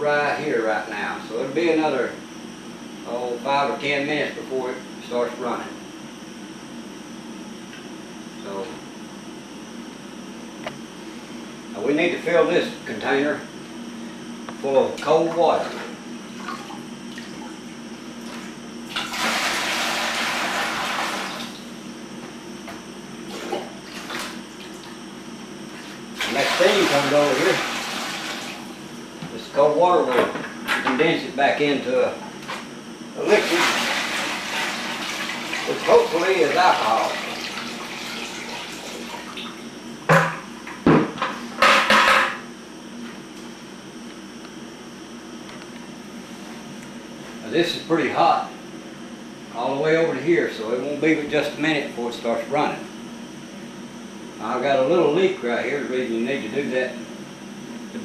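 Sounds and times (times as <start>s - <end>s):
water pouring into bucket: 18.9s - 21.5s, 26.2s - 28.6s, 33.2s - 39.3s.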